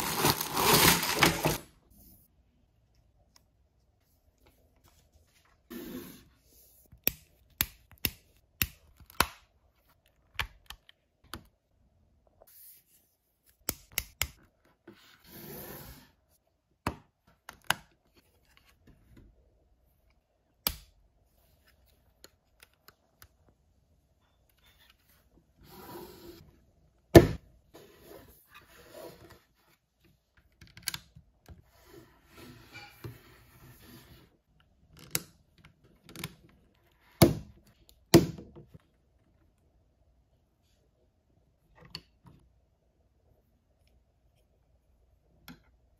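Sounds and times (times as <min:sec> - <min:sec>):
packaging rustling: 0:00.0 - 0:01.6.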